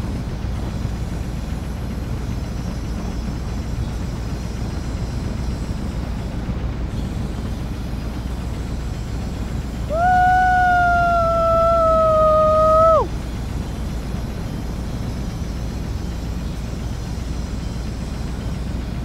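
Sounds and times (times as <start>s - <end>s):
young man howling: 9.9s - 13.1s.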